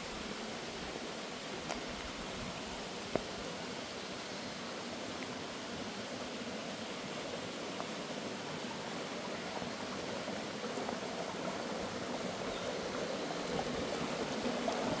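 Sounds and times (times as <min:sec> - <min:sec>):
stream water trickling: 0:00.0 - 0:15.0.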